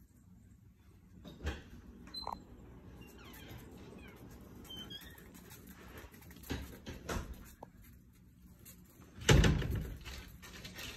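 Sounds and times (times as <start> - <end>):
puppies squeaking: 2.1 - 5.8
puppies scuffling on concrete: 2.8 - 10.9.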